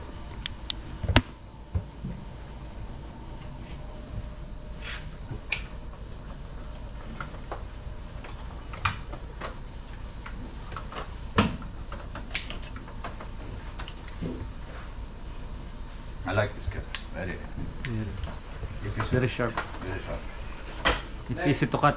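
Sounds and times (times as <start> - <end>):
steady low hum: 0.0 - 21.9
clicks and knocks of wiring work: 6.7 - 14.4.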